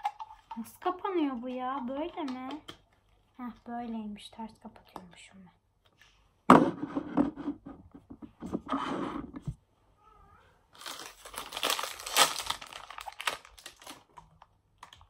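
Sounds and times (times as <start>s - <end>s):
plastic packaging crinkling: 10.7s - 15.0s
plastic packaging rustling: 10.7s - 15.0s.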